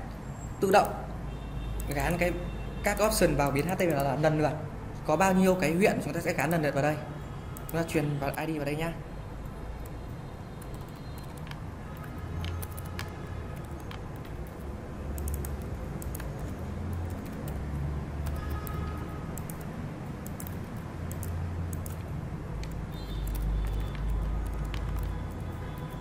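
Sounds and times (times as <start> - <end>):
keyboard key clicks: 10.6 - 26.0.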